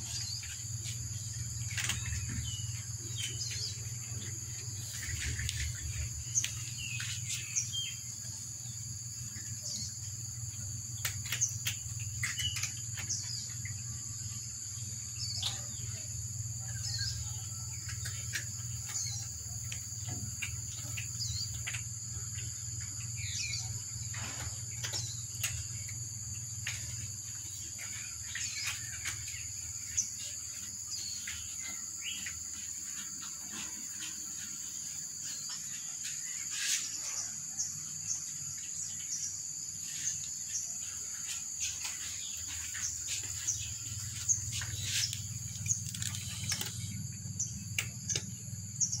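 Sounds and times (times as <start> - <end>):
high-pitched insect drone: 0.0 - 49.0
cats chewing dry kibble: 41.1 - 49.0
low hum: 41.7 - 49.0.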